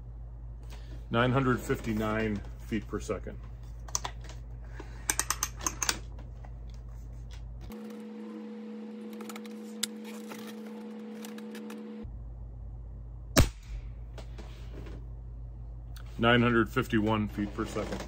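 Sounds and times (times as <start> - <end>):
air rifle shot: 13.4 - 14.0.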